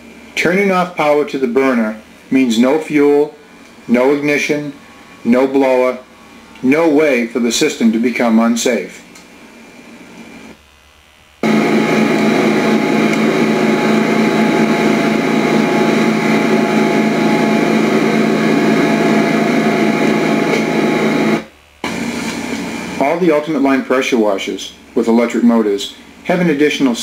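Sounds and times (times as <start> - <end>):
pressure washer running: 11.4 - 23.2.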